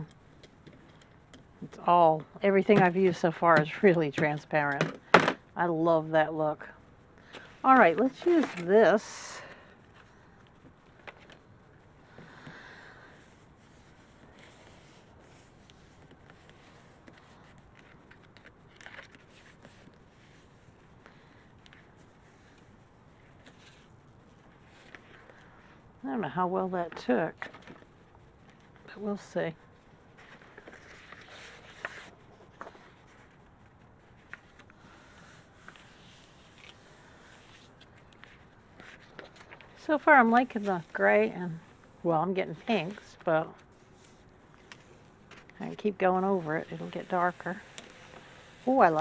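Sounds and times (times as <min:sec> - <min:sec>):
palms brushing over paper: 0:00.1 - 0:04.7, 0:07.2 - 0:49.0
hands rubbing cardboard: 0:13.1 - 0:18.5
paper rustling: 0:13.1 - 0:25.8, 0:29.6 - 0:39.8.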